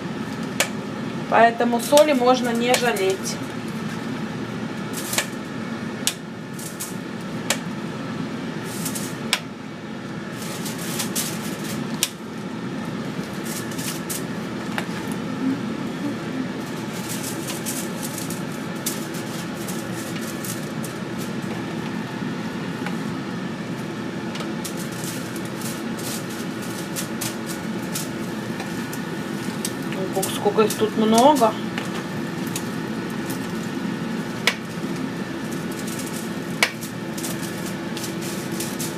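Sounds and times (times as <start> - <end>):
cooking appliance humming: 0.0 - 38.9
plastic crinkling: 10.2 - 38.9.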